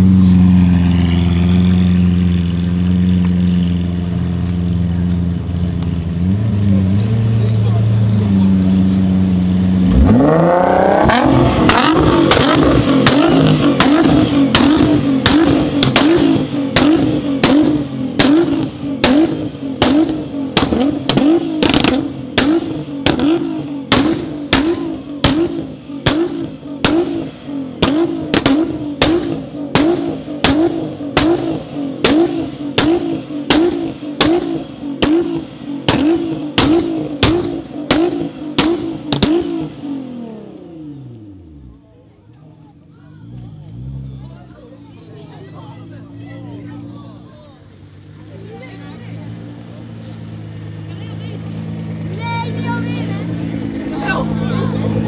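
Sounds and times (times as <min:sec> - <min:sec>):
car engine revving high: 0:06.1 - 0:41.8, 0:49.1 - 0:55.0
exhaust pops and bangs: 0:11.2 - 0:39.8.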